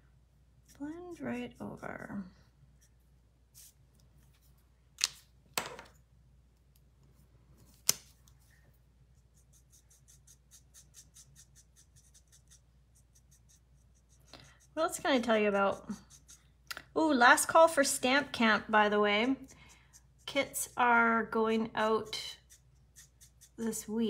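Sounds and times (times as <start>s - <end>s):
marker scratching on paper: 9.1s - 16.6s, 18.2s - 24.0s.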